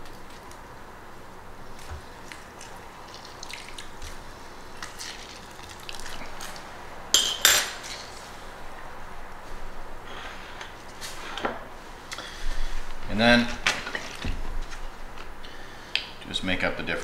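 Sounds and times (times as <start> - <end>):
juice squelching and dripping: 1.8 - 6.8.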